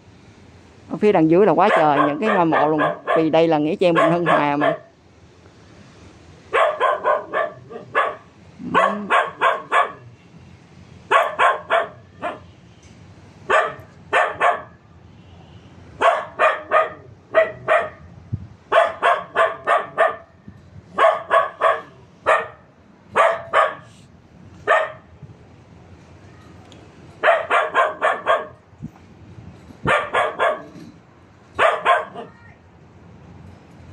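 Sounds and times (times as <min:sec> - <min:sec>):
small dog barking: 0:01.6 - 0:04.9, 0:06.5 - 0:10.1, 0:11.1 - 0:12.5, 0:13.5 - 0:14.8, 0:16.0 - 0:18.1, 0:18.7 - 0:20.4, 0:21.0 - 0:23.9, 0:24.6 - 0:25.1, 0:27.2 - 0:28.6, 0:29.8 - 0:30.8, 0:31.6 - 0:32.4.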